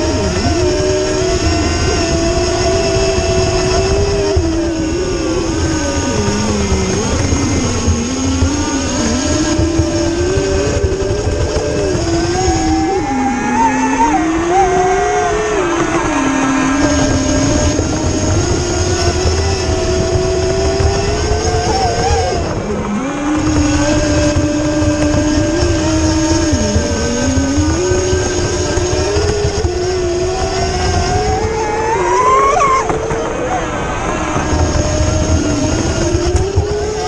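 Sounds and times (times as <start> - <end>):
electric motor whining: 0.0 - 37.0.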